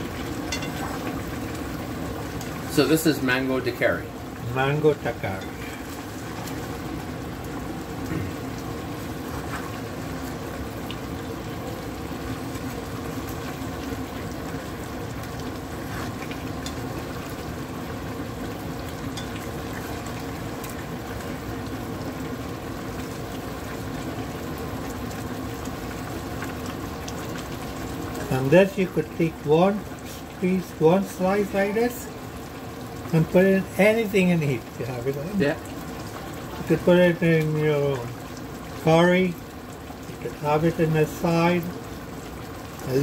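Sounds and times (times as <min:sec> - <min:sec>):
liquid boiling in a pot: 0:00.0 - 0:43.0.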